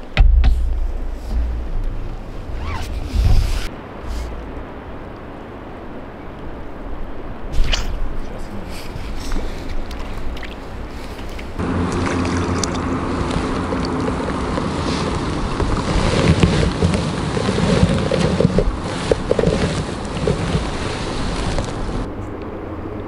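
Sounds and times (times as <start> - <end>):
rippling lake water: 0.0 - 22.2
steady rumble: 0.0 - 23.0
wind buffeting microphone: 0.0 - 23.0.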